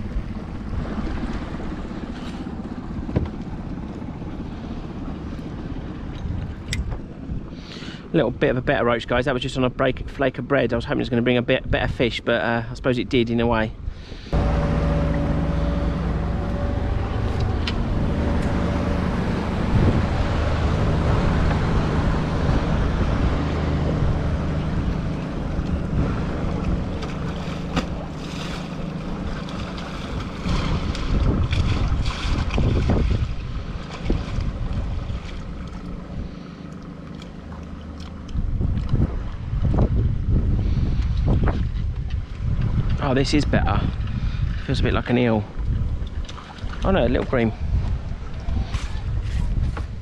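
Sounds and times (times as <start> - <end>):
wind buffeting the microphone: 15.3 - 36.4, 38.2 - 50.0.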